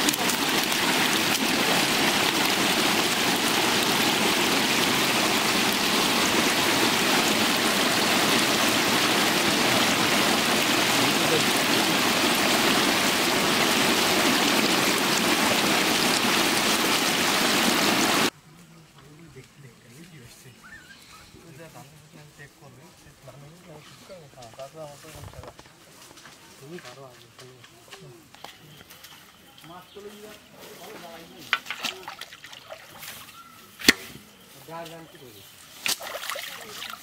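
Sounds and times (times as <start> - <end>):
water rushing and splashing: 0.0 - 18.3, 35.9 - 37.0.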